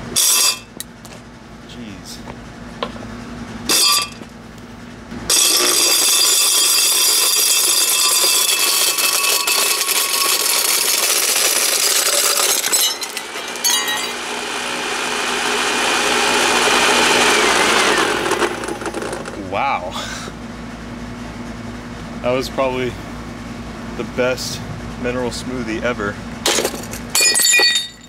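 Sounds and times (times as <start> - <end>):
blender motor whine: 5.3 - 19.4
stones rattling in blender: 5.4 - 14.2, 18.0 - 19.4.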